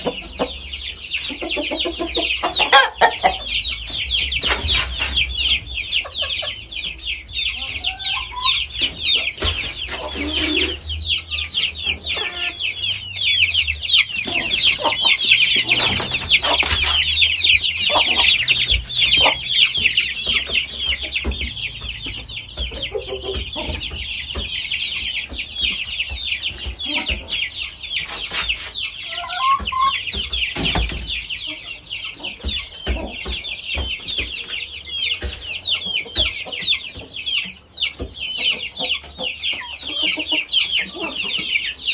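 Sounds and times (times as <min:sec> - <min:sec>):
chickens clucking: 0:00.0 - 0:41.9
high rapid chirping chorus: 0:10.6 - 0:32.0.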